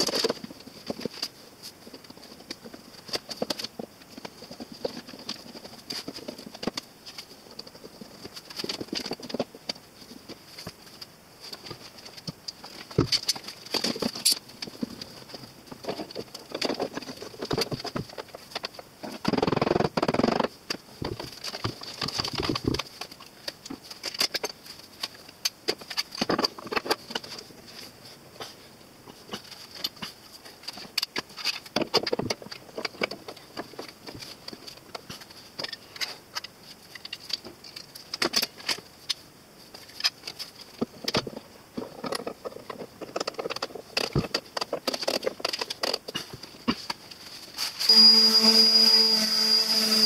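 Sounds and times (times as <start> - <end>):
steady high-pitched whine: 46.4 - 50.0.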